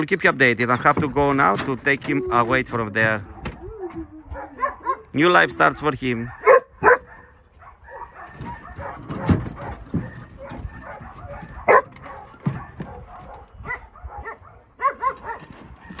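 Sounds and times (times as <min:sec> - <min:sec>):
dog barking: 0:03.2 - 0:05.1, 0:06.2 - 0:16.0.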